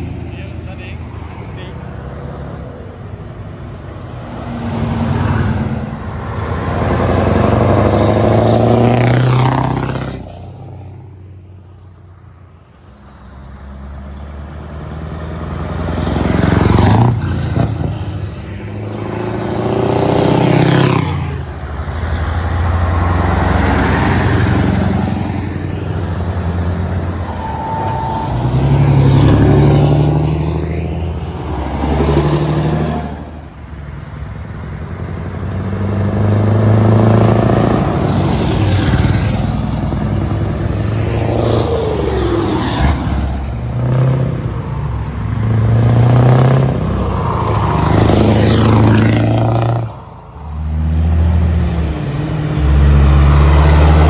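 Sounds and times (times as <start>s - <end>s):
trucks driving past: 0.0s - 54.0s
short steady tone: 27.3s - 29.5s.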